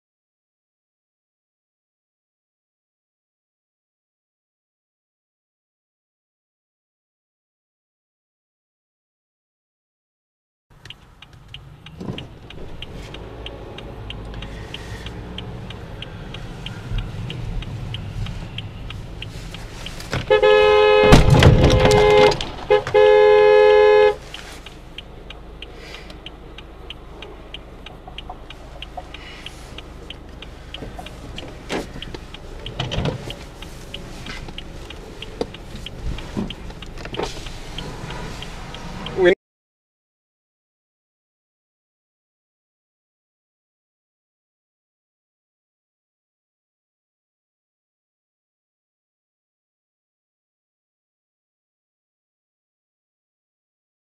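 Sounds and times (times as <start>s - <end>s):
road and engine noise: 10.7s - 39.4s
car horn blasts: 20.1s - 24.3s.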